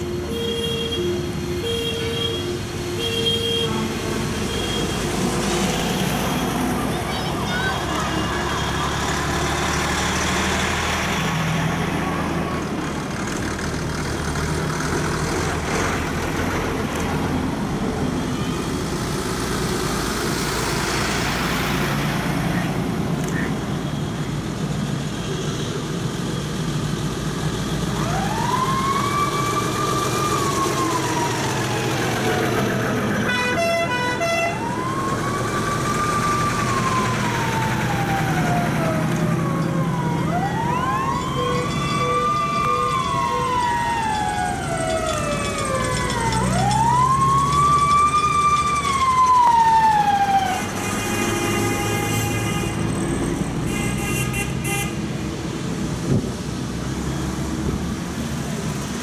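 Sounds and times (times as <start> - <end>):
fire engine siren wailing: 0.0 - 9.7, 27.7 - 53.5
trucks driving past: 0.0 - 59.0.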